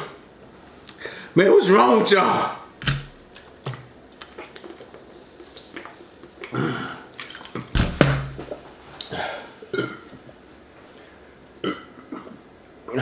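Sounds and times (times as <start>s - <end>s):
liquid glugging in a bottle: 3.2s - 10.4s
person gulping soda: 3.2s - 10.5s
bottle thump on wooden table: 7.8s - 8.5s.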